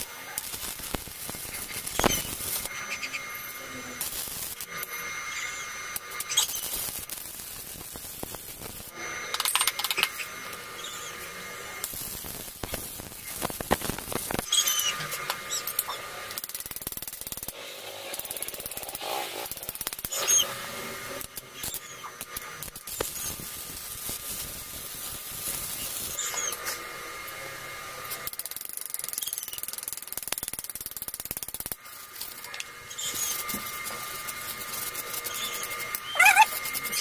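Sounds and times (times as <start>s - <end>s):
clatter of tools and metal parts: 9.3s - 10.2s.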